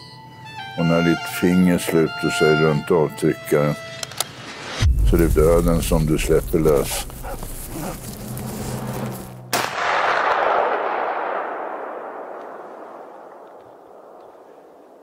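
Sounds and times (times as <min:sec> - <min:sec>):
gunshot with long echo: 0:09.5 - 0:15.0.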